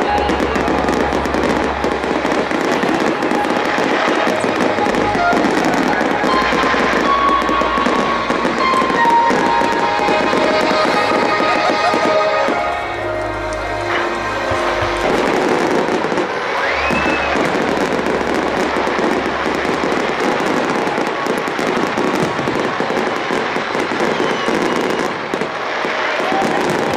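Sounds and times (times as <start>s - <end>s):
music playing: 0.0s - 24.0s.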